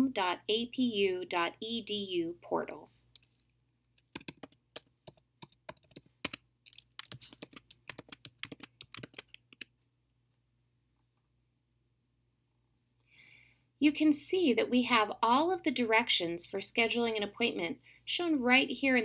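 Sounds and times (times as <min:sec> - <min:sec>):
typing on keyboard: 0:04.0 - 0:09.7.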